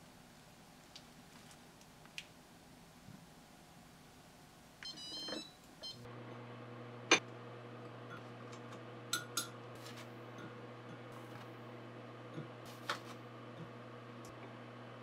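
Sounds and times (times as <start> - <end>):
cooktop low hum: 0.0 - 15.0
cooktop beeping: 4.8 - 6.1.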